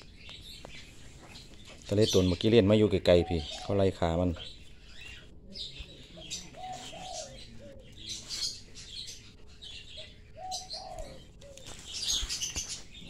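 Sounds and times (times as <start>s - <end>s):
lovebirds chirping: 0.0s - 13.0s
lower coo-like notes: 5.4s - 8.3s, 9.9s - 11.8s.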